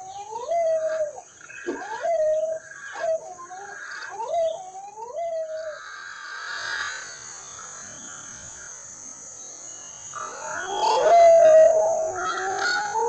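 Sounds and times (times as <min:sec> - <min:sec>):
animal wailing calls: 0:10.1 - 0:13.0.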